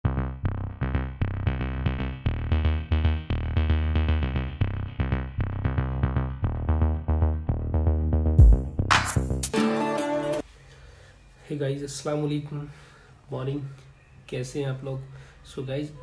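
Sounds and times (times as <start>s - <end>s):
electronic music with beat: 0.0s - 10.4s.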